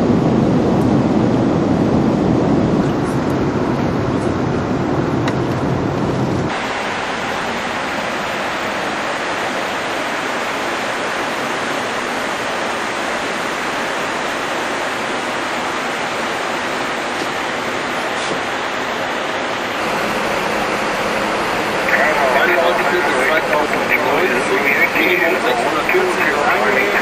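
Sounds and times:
airliner cabin airflow and engine: 0.0 - 27.0.

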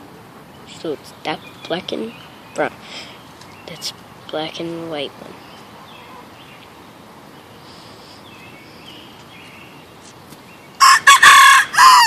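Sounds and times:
rooster crowing: 10.8 - 12.0.

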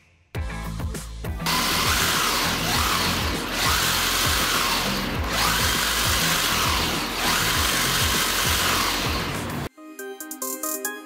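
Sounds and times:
electronic background music: 0.4 - 11.0
electric motor whine: 1.5 - 9.7.

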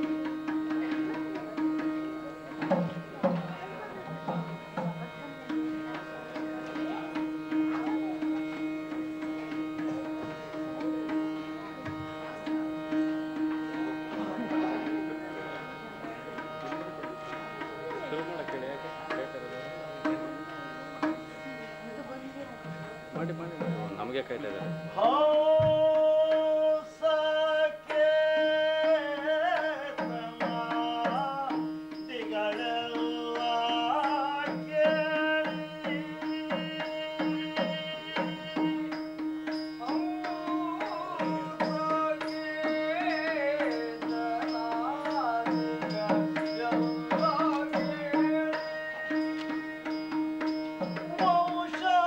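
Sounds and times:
hand drum strokes: 0.0 - 19.3
person singing ornamented melody: 25.0 - 52.0.

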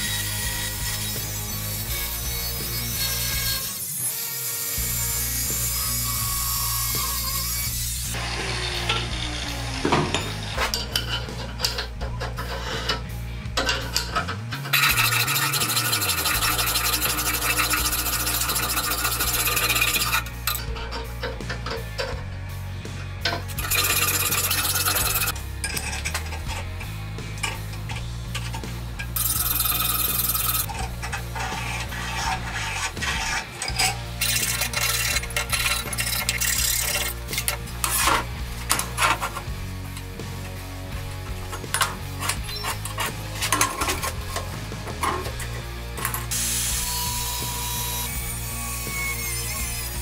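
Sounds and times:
background music with bass: 0.0 - 50.0
hand file rasping on steel: 10.2 - 13.1, 14.0 - 22.0, 23.5 - 28.5, 29.1 - 39.5, 41.6 - 45.5.

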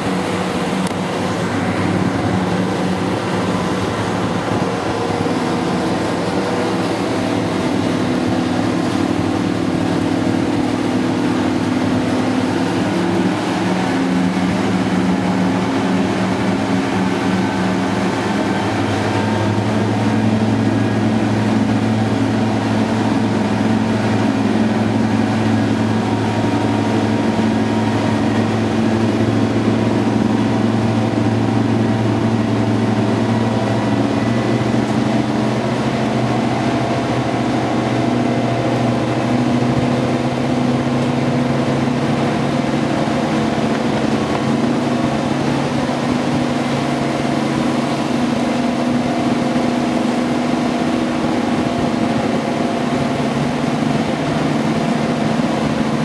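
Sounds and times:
deeper hum: 0.0 - 56.0
diesel engine drone: 0.0 - 56.0.

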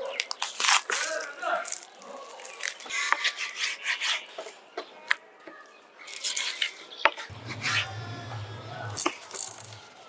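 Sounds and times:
knife cutting raw chicken: 0.1 - 4.6.

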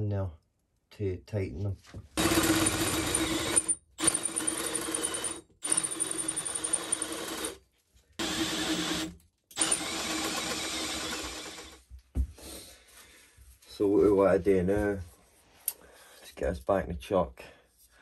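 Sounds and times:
cordless drill boring into metal: 2.2 - 7.6, 8.2 - 11.8.

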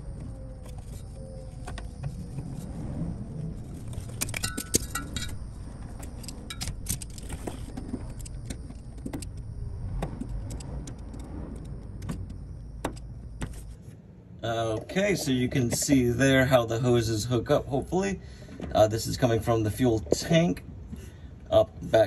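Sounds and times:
steady low rumble: 0.0 - 21.8
metallic clicks and clinks: 3.8 - 9.4.

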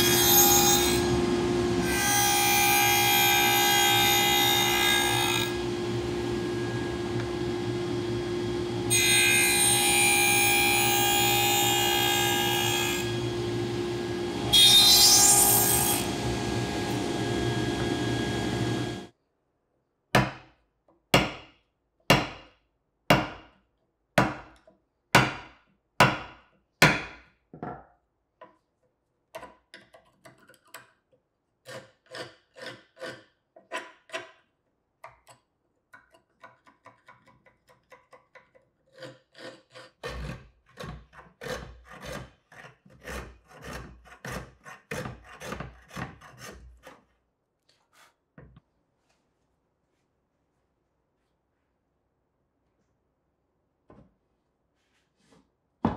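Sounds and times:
table saw cutting wood: 0.0 - 19.1
chisel paring and scraping wood: 29.3 - 31.0, 31.6 - 47.2
shoulder plane trimming wood: 38.9 - 47.0.

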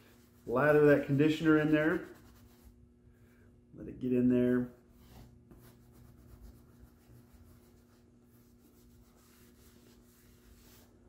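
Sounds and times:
steady low hum: 0.0 - 11.0
cloth rubbing leather: 4.9 - 11.0.

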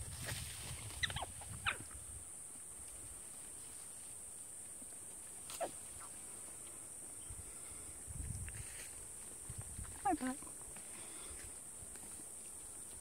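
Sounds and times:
high-pitched animal calls: 0.9 - 2.0.

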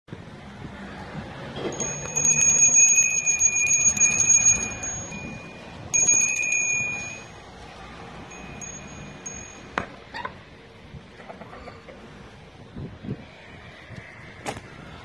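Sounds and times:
small metal hand bell ringing: 1.7 - 7.4, 8.2 - 9.9.

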